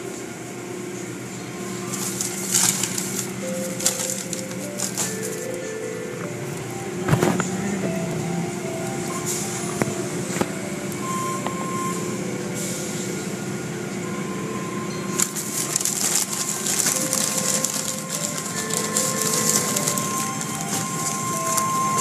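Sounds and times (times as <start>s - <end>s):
steady machine hum: 0.0s - 22.0s.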